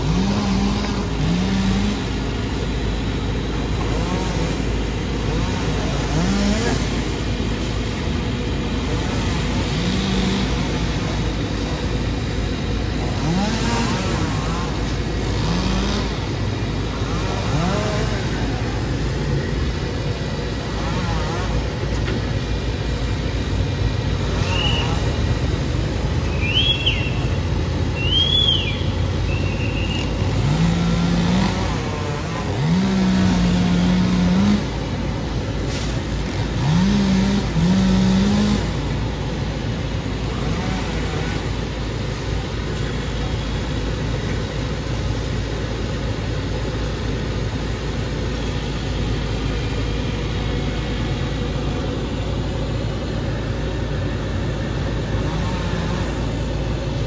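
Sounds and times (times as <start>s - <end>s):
chainsaw revving: 0.0s - 7.8s, 8.6s - 11.9s, 12.5s - 21.9s, 30.0s - 42.2s, 53.9s - 57.0s
road traffic hum: 0.0s - 57.0s
bird whistles: 24.4s - 25.0s, 26.3s - 27.2s, 28.0s - 30.1s.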